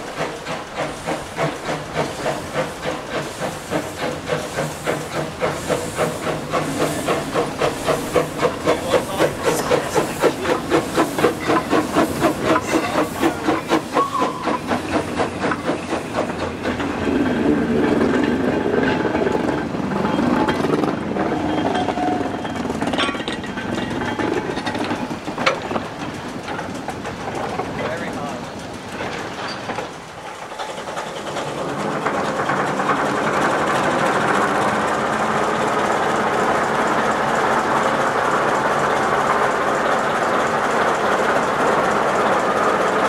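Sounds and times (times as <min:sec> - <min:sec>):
steam hiss: 0:00.0 - 0:20.0
steam locomotive chuffing: 0:00.0 - 0:43.0.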